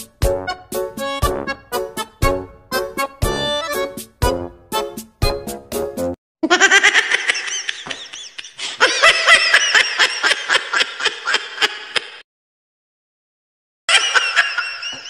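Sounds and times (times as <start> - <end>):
high-pitched laughter: 6.4 - 12.2, 13.9 - 15.0.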